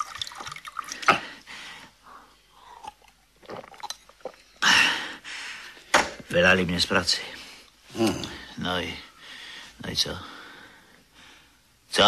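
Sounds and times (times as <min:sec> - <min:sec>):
mouth and swallowing sounds: 0:02.7 - 0:04.6.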